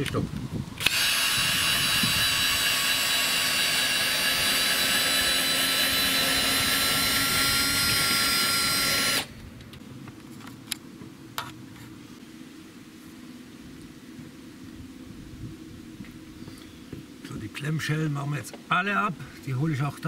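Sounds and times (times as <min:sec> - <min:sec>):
cordless drill motor whine: 0:00.8 - 0:09.4.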